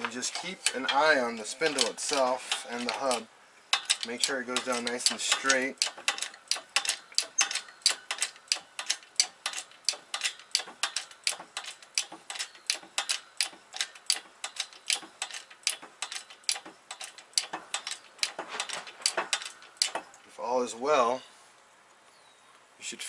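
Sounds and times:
hydraulic jack pump clicking: 0.0 - 20.2.

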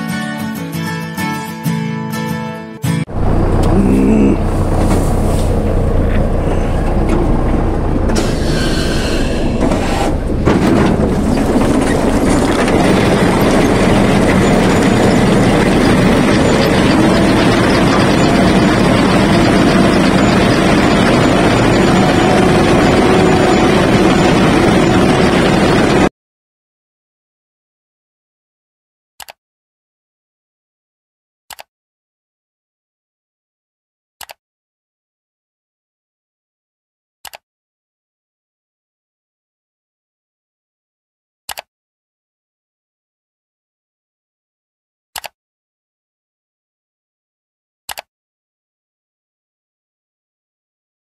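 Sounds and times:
low machine drone: 3.1 - 26.1
potato harvester conveyors clattering: 9.4 - 26.0.

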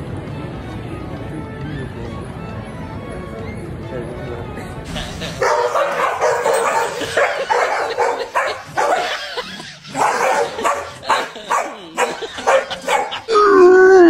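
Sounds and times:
dogs barking: 5.0 - 13.3.

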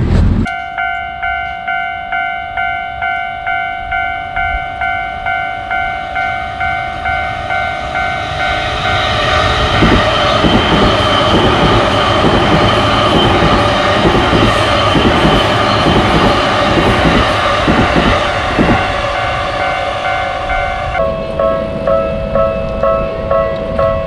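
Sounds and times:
electric train passing: 0.0 - 24.0
level crossing bell ringing: 0.5 - 9.0, 18.6 - 24.0
rhythmic train wheel clacks: 0.5 - 24.0.

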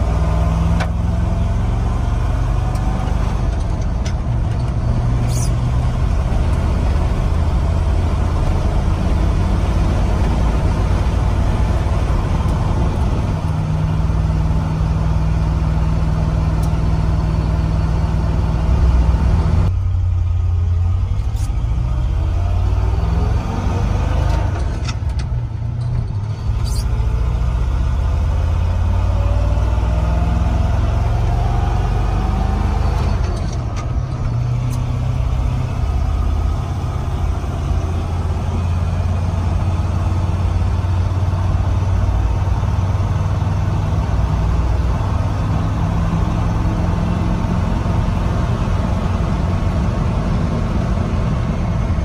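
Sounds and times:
road noise: 0.0 - 52.0
truck engine running: 0.0 - 52.0.

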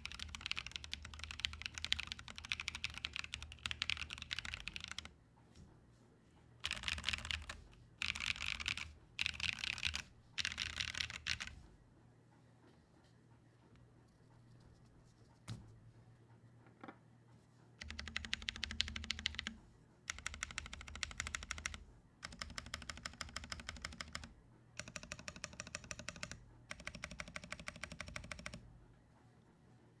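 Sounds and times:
fast typing on mechanical keyboard: 0.0 - 5.1, 6.6 - 11.6, 17.8 - 28.6.

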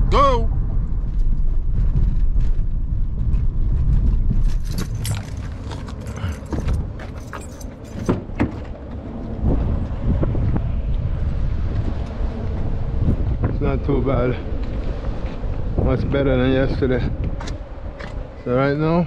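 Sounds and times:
car rumbling over rough pavement: 0.6 - 19.0
car door clicks and knocks: 8.0 - 8.7.

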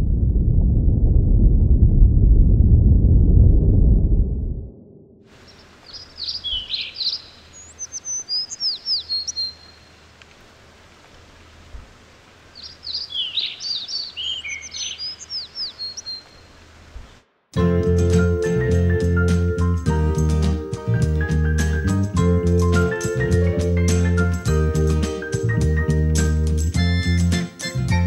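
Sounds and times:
low rumble: 0.0 - 5.3
songbird singing: 5.3 - 10.4, 12.3 - 17.2
faint outdoor hiss: 5.3 - 27.9.

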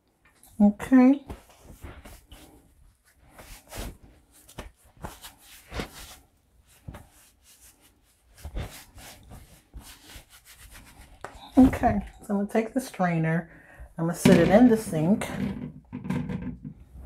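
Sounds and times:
paper towel rustling and crinkling: 1.3 - 12.1.

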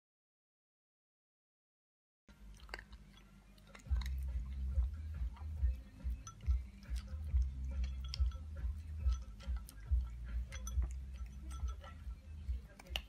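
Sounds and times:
dog crunching dry kibble: 2.3 - 13.0
muzzle clinking ceramic bowl: 2.7 - 13.0.

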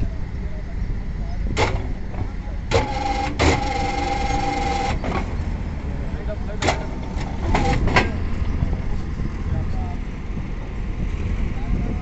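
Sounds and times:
bending machine whine: 2.7 - 5.5, 6.6 - 8.6.

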